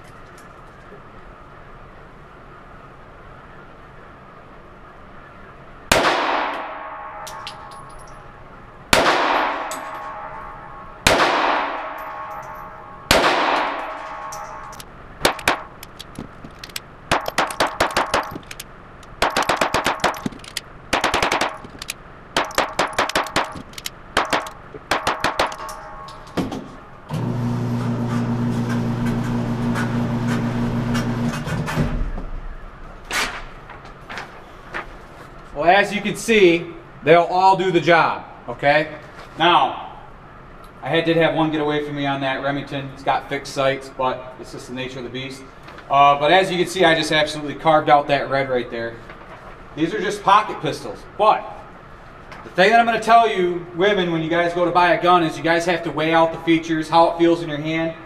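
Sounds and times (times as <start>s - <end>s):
pistol shots echoing: 5.9s - 8.0s, 8.9s - 16.0s, 17.1s - 26.9s
target carrier motor humming: 14.3s - 31.7s.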